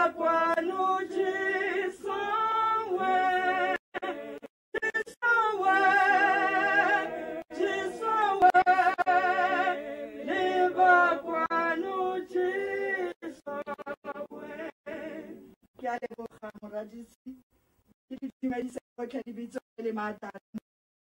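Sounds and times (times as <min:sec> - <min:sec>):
person singing unaccompanied: 0:00.0 - 0:15.5.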